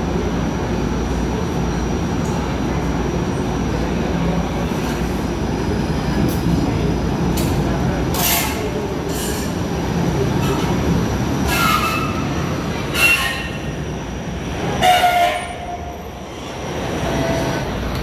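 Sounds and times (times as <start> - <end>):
streetcar rumbling: 0.0 - 18.0
steel wheels squealing on rails: 8.1 - 9.7, 10.4 - 17.8.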